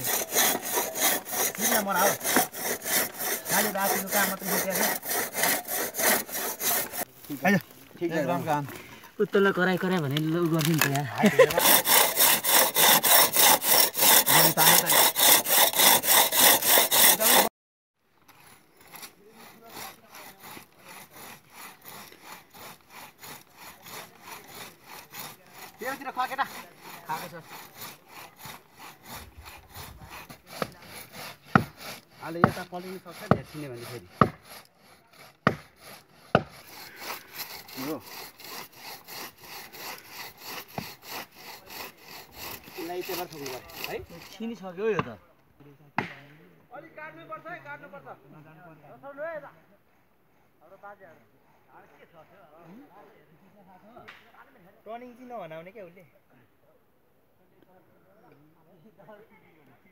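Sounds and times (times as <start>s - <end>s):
crosscut saw cutting trunk: 0.0s - 17.5s, 18.2s - 45.2s
hand saw cutting wood: 0.0s - 17.5s, 18.3s - 45.1s.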